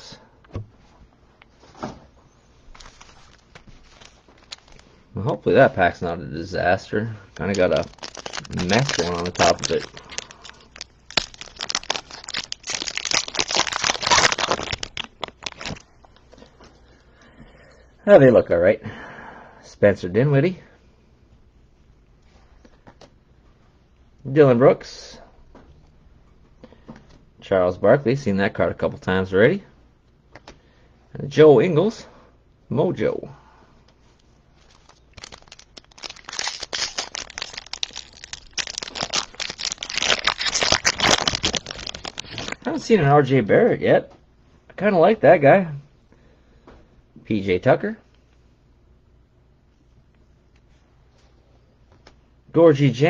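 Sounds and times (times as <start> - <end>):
wrapper tearing and crinkling: 2.7 - 4.9, 7.4 - 15.9, 34.6 - 42.7.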